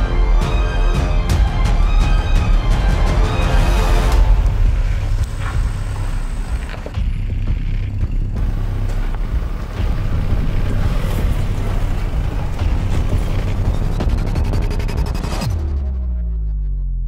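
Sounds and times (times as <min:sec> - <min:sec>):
pickup engine rumble: 0:04.2 - 0:15.5.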